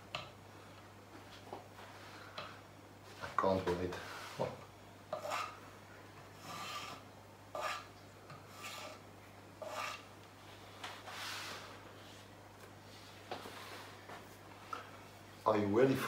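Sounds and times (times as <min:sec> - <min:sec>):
stir stick scraping plastic cup: 0:08.5 - 0:09.0.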